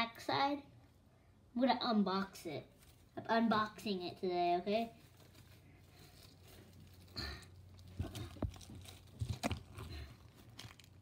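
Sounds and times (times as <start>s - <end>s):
plastic wrap crackling and tearing: 4.8s - 11.0s.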